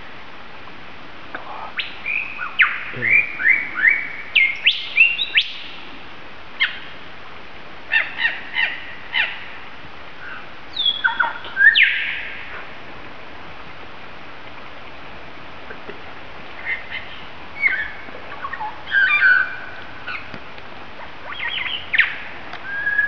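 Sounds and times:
lyrebird mimicking bird calls: 1.8s - 3.9s, 16.6s - 20.3s.

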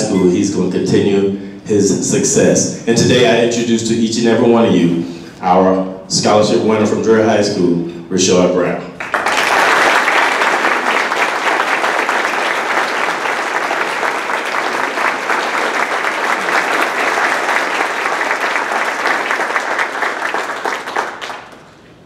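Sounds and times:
audience applauding: 9.0s - 21.8s.

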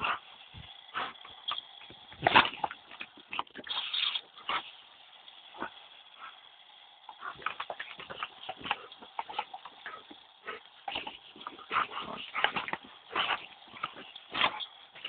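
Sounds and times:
water splashing: 1.0s - 4.8s
dog snapping at water: 1.1s - 3.9s.

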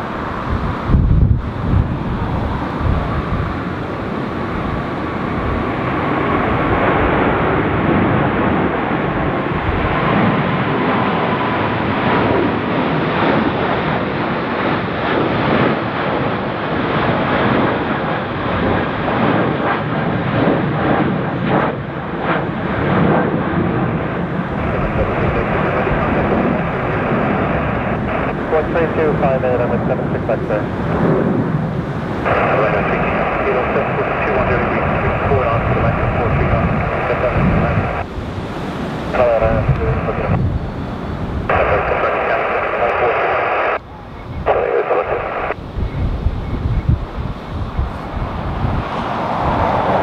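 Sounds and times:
jet engine whine: 0.0s - 50.0s
jet engines roaring overhead: 0.0s - 50.0s.

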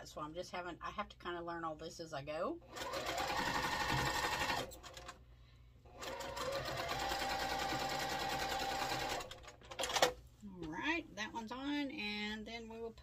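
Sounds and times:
sewing machine stitching: 2.7s - 5.2s, 6.0s - 10.2s.

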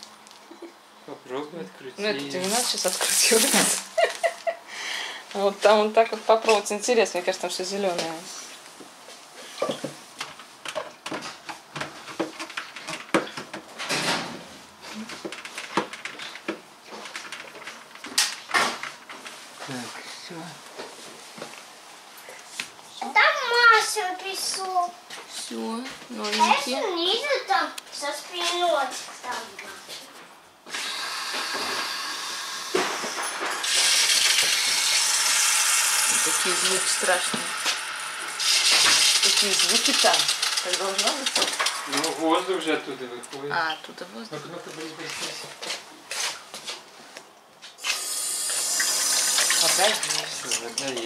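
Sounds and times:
water filter hissing: 2.4s - 5.5s, 30.6s - 43.7s, 47.8s - 51.0s.

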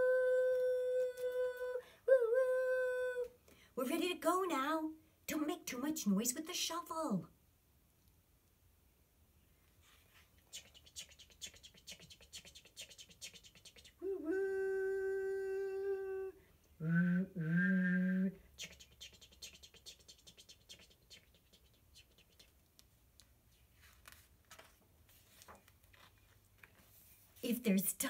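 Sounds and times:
woman imitating train whistle: 14.1s - 18.4s
paper page turning: 23.5s - 27.4s.

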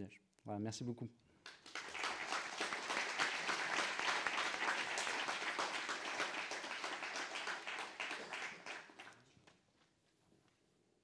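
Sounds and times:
audience applauding: 1.4s - 9.2s.

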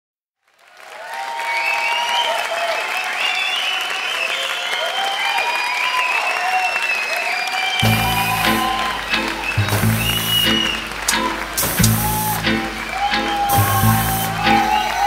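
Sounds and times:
heavy bass and beat: 7.8s - 9.0s, 9.6s - 12.6s, 13.5s - 15.0s.

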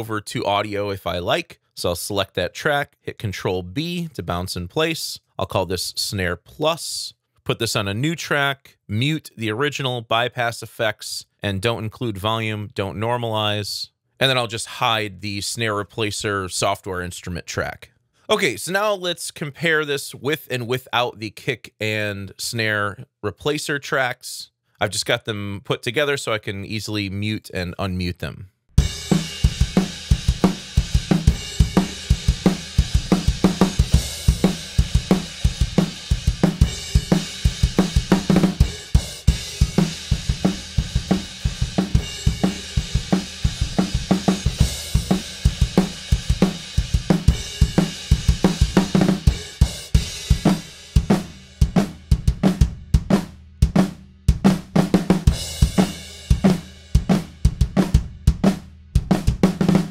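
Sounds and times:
rock drum kit beat: 28.8s - 59.9s.

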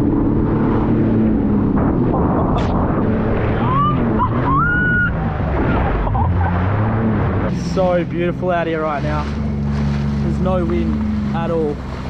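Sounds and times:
short rising tone: 0.0s - 7.4s
jet ski engine droning: 0.0s - 12.0s
rush of water and wind: 0.0s - 12.0s.

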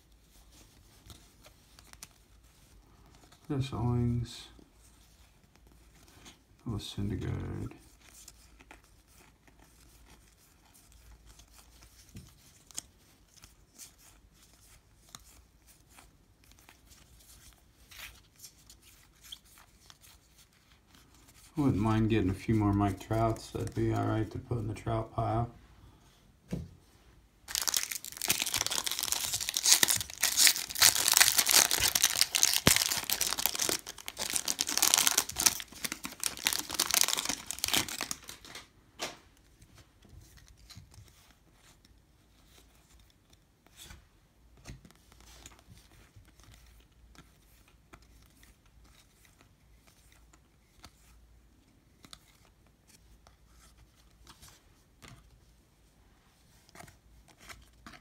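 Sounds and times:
foil wrapper tearing and crinkling: 27.5s - 38.6s
cards being flipped: 27.5s - 39.2s.

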